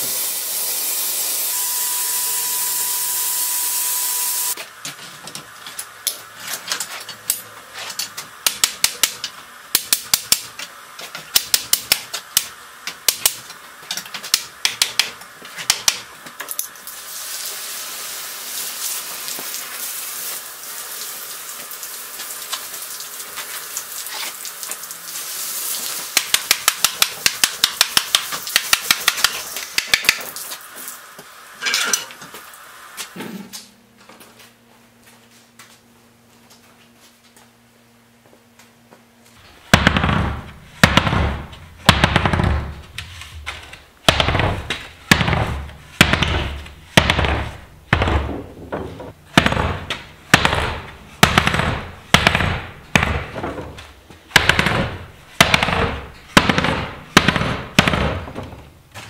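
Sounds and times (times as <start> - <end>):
water and steam hissing: 0.0 - 4.8, 16.7 - 26.3.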